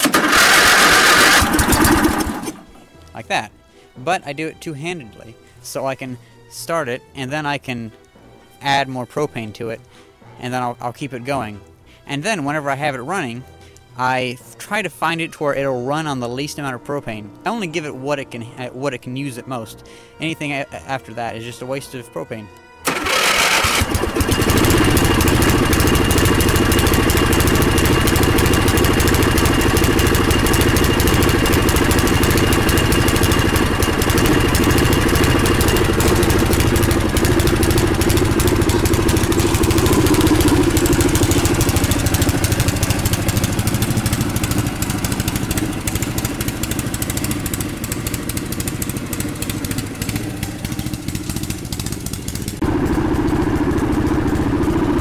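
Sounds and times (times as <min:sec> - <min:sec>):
riding lawn mower engine running: 0:00.0 - 0:03.2, 0:22.8 - 0:55.0.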